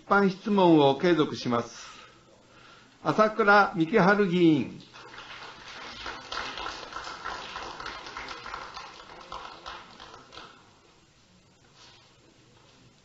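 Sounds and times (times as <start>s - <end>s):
footsteps and shuffling: 11.6s - 13.0s.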